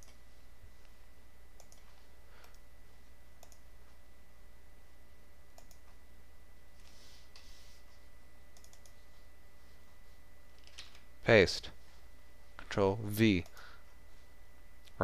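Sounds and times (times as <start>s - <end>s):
low electrical hum: 0.0s - 15.0s
computer mouse clicking: 1.6s - 2.6s, 3.4s - 3.7s, 5.6s - 6.0s, 8.6s - 9.0s.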